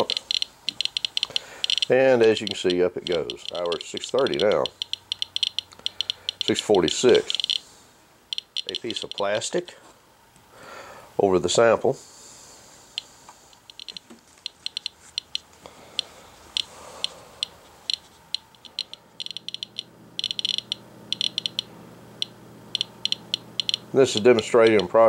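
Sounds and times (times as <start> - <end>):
geiger counter chirping: 0.0 - 7.7, 8.3 - 9.4, 13.0 - 24.0.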